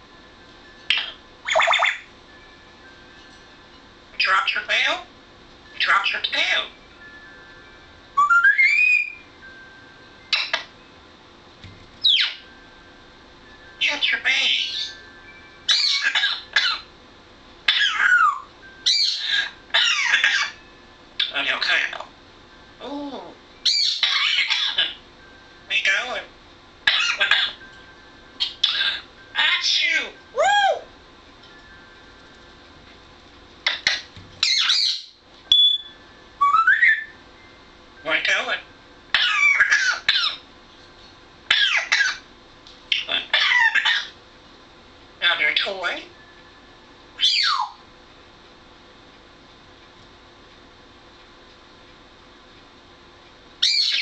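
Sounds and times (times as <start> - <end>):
parrot squawking: 0.9 - 2.1, 4.2 - 5.0, 5.8 - 6.7, 8.2 - 9.2, 10.3 - 10.7, 12.0 - 12.5, 13.8 - 15.0, 15.7 - 16.9, 17.7 - 20.6, 21.2 - 22.1, 23.2 - 25.0, 25.7 - 27.6, 28.4 - 30.9, 33.6 - 37.2, 39.1 - 40.5, 41.5 - 42.3, 42.9 - 44.2, 47.2 - 47.8, 53.6 - 54.0.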